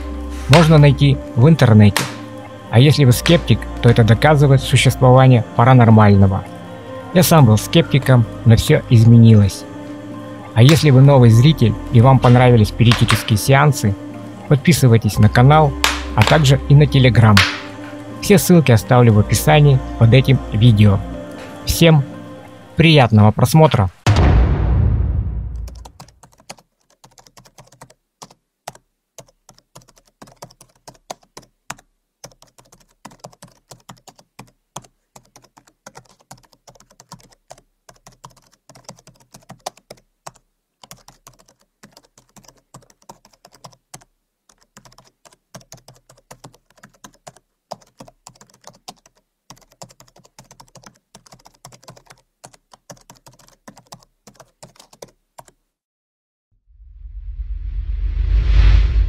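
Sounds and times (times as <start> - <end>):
keyboard keys clicking: 12.2 - 13.4, 25.6 - 55.6.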